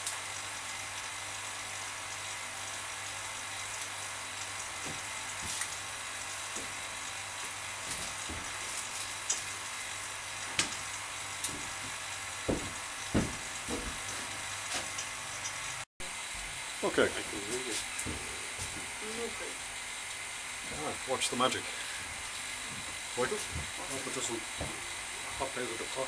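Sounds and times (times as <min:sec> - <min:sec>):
vacuum pump hissing and humming: 0:00.0 - 0:26.0
dull knocks: 0:11.5 - 0:14.3, 0:24.6 - 0:24.9.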